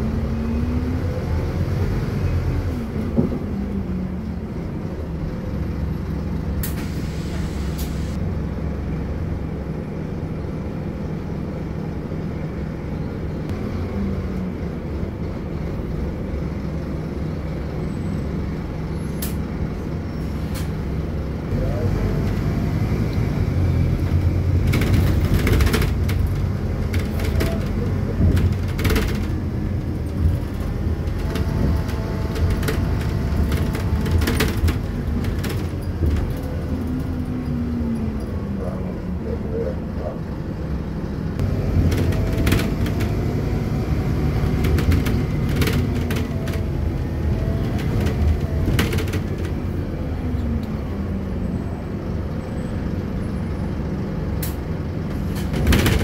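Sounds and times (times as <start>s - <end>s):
bus engine rumble and whine: 0.0s - 56.0s
rattles and clicks from bus body: 1.2s - 3.8s, 4.4s - 8.2s, 18.6s - 50.9s, 52.1s - 56.0s.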